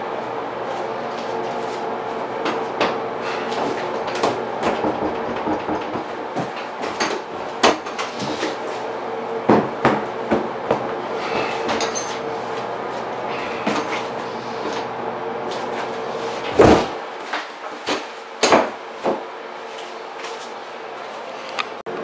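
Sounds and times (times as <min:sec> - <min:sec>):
steady hum: 0:00.0 - 0:17.4
doorknob rattling: 0:04.6 - 0:06.3
door knocking: 0:04.6 - 0:06.5.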